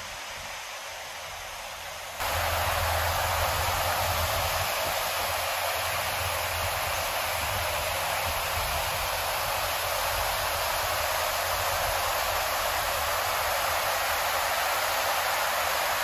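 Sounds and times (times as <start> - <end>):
quiet steady hiss: 0.0 - 16.0
river rapids roaring: 0.0 - 16.0.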